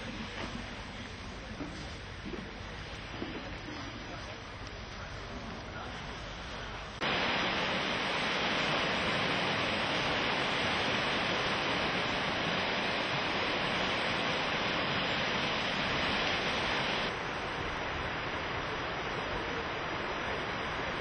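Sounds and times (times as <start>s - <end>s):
river water rushing: 7.0s - 21.0s.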